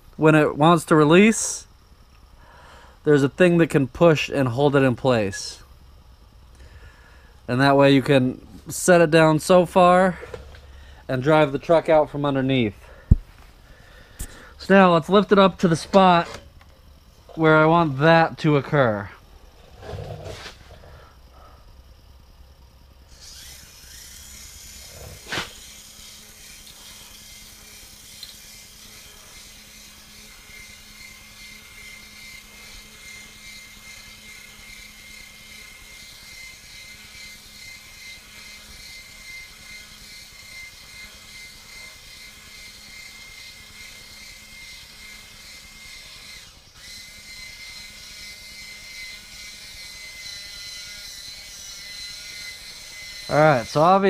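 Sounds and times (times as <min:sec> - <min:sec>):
small electric motor whining: 0:23.0 - 0:54.0.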